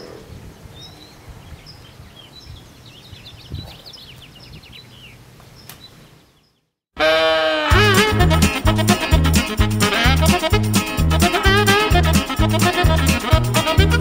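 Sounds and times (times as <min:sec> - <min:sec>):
small birds chirping: 0:00.0 - 0:06.8.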